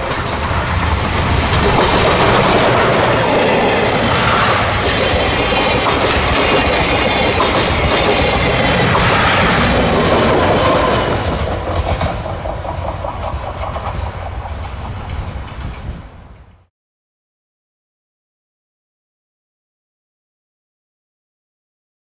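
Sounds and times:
diesel locomotive passing: 0.0s - 16.7s
train coaches rumbling past: 0.0s - 16.7s
wheels clacking over rail joints: 0.0s - 16.7s.

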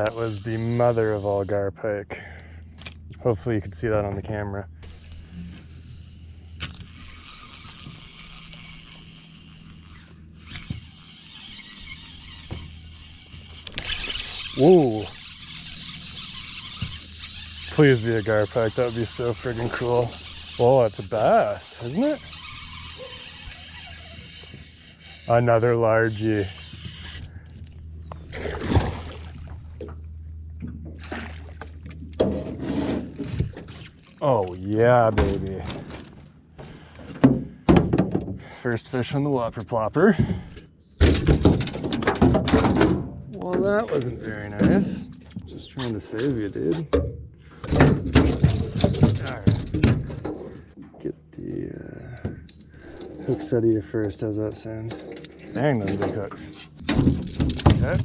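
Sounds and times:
fishing reel whirring: 0.0s - 1.6s, 4.8s - 27.8s
low hum: 0.0s - 37.6s
landing net scooping water: 28.2s - 35.4s
fish splashing at water surface: 30.9s - 32.2s.

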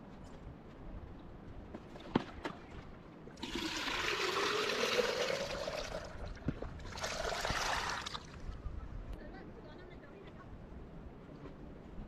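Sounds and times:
milk squirting into jug: 3.4s - 6.2s.

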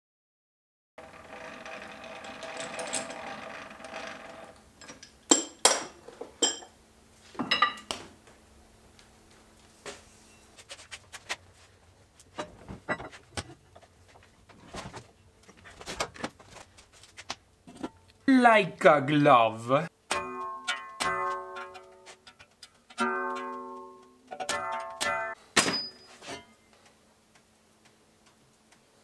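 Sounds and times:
metal clanks: 20.1s - 26.6s
metal scraping ring: 20.2s - 26.7s.

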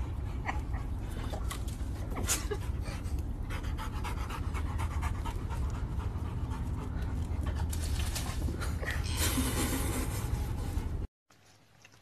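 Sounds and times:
low steady rumble: 0.0s - 11.1s
large dog panting: 2.4s - 8.5s.

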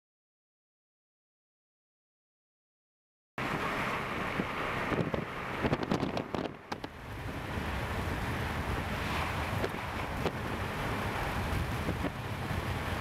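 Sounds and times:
car road noise: 3.4s - 13.0s
wind buffeting microphone: 3.4s - 13.0s.

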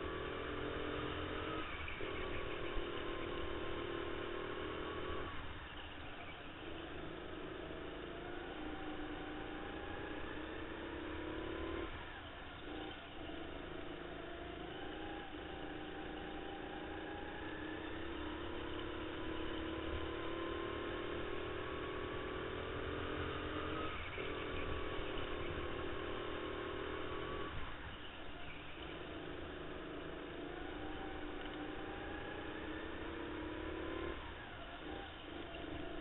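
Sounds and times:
kart engine revving: 0.0s - 36.0s.

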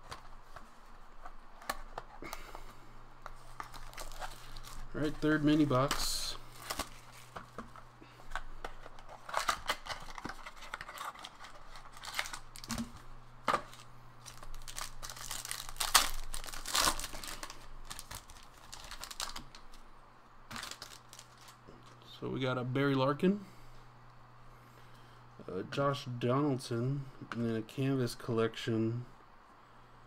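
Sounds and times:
foil wrapper crinkling and tearing: 3.3s - 7.6s, 8.3s - 19.8s, 20.5s - 21.6s.

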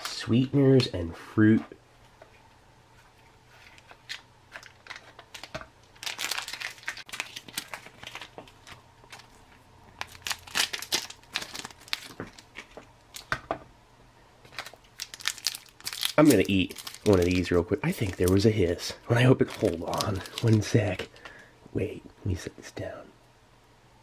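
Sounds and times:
plastic pouches crinkling: 3.5s - 13.4s, 14.4s - 21.4s
plastic pouch tearing: 4.0s - 13.3s, 14.5s - 18.5s, 19.4s - 21.0s.

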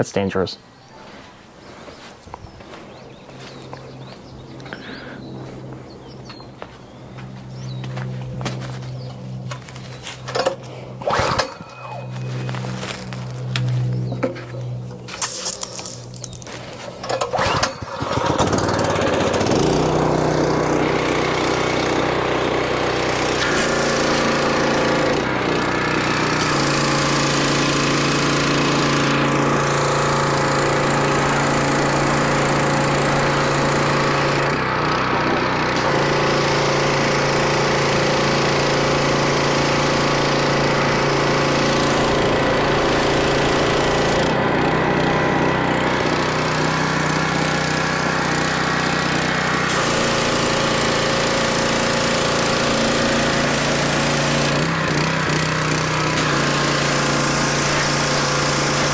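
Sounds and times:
gas engine running under load: 3.4s - 58.9s
high-pressure water jet hissing: 23.2s - 28.1s, 49.4s - 58.9s.

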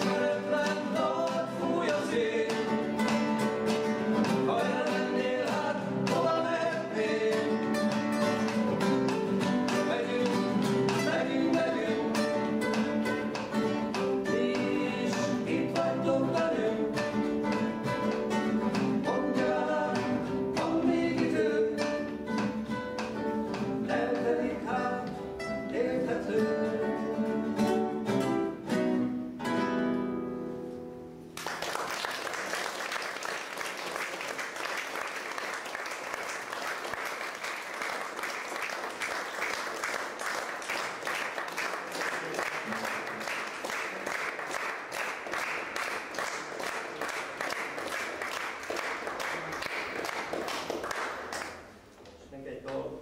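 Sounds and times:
person singing: 0.0s - 3.1s, 4.3s - 8.1s, 9.6s - 12.7s, 13.9s - 17.6s, 18.8s - 22.3s, 23.8s - 27.4s
strummed acoustic guitar: 0.0s - 31.2s.

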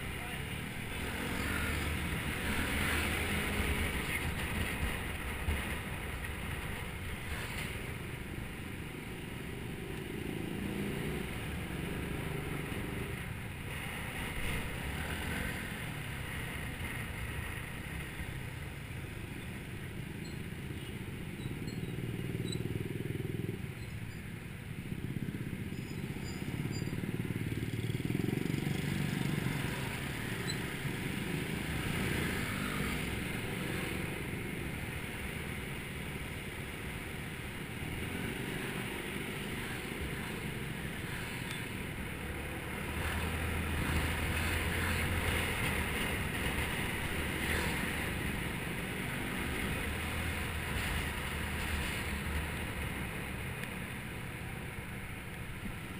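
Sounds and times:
scooter engine and road rumble: 0.0s - 55.9s.

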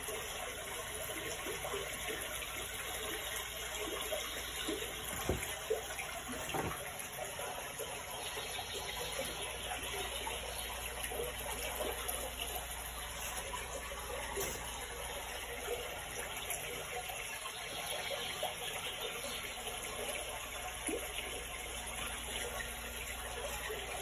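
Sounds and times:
running water gurgling: 0.0s - 24.0s
soft knocks: 5.0s - 6.9s.

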